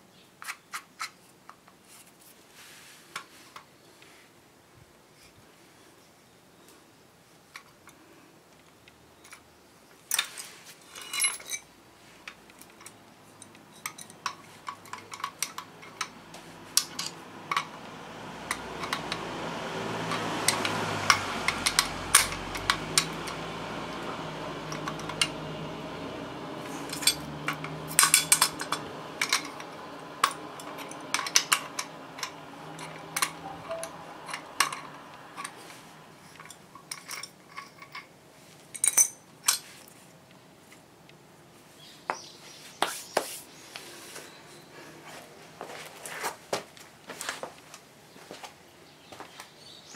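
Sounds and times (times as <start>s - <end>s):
metal parts clicking and clinking: 10.1s - 17.8s, 18.5s - 19.2s, 20.1s - 23.4s, 24.7s - 25.4s, 26.6s - 39.8s
bolts and washers knocking: 12.7s - 25.6s, 26.7s - 38.0s
low hum: 15.2s - 37.5s.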